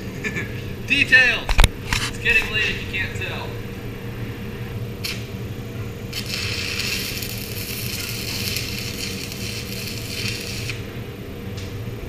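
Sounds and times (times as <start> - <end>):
low hum: 0.0 - 12.0
welding arc crackling: 5.0 - 5.4, 6.0 - 11.0.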